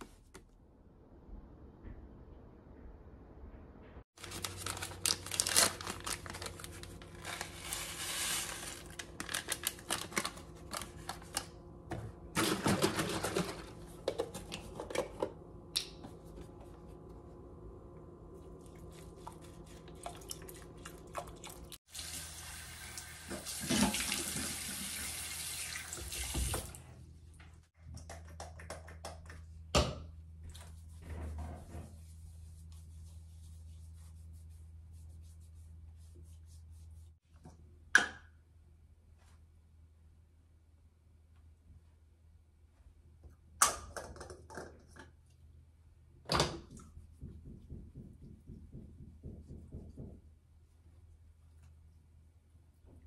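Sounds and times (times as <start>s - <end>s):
food packet rustling: 4.2s - 11.5s.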